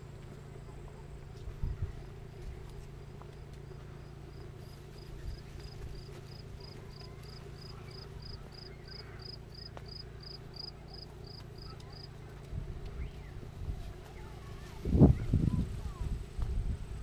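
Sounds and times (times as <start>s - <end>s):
low rumble: 0.0s - 17.0s
cricket chirping: 3.6s - 12.1s.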